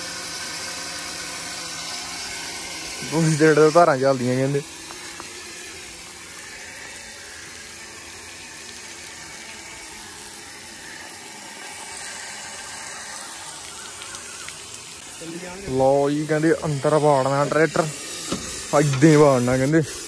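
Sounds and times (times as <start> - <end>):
water spraying from tyre valve: 0.0 - 20.0.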